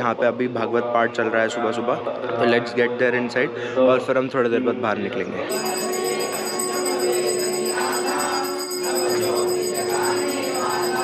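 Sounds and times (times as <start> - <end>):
bells ringing: 5.5 - 11.0.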